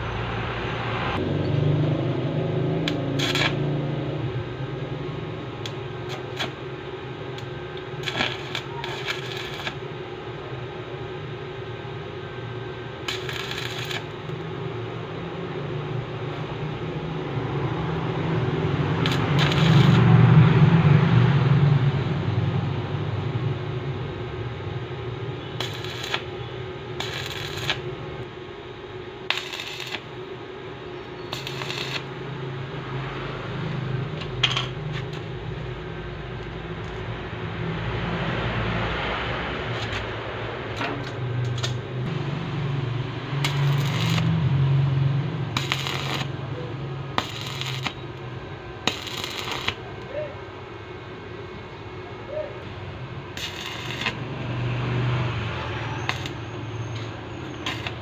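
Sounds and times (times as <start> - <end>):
welding machine hum: 1.2 - 21.5, 23.0 - 37.1, 39.4 - 58.0
arc welding crackling bursts: 2.8 - 4.0, 5.6 - 6.7, 7.4 - 9.9, 13.0 - 14.4, 18.7 - 20.3, 25.5 - 28.0, 29.2 - 30.2, 31.3 - 32.2, 41.5 - 44.6, 45.4 - 50.3, 53.3 - 56.5, 57.4 - 58.0.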